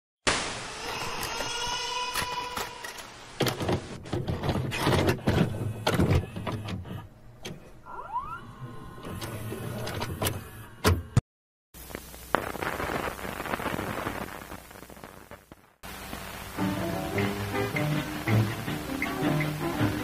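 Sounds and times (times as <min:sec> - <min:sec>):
static hiss: 0:00.3 - 0:04.0, 0:11.8 - 0:20.0
mechanical clicks and clunks: 0:02.6 - 0:07.8, 0:09.0 - 0:11.2
hum: 0:11.8 - 0:20.0.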